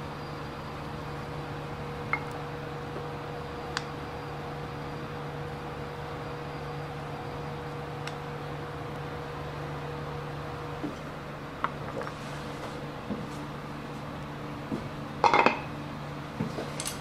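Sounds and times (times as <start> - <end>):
kitchen machinery hum: 0.0 - 17.0.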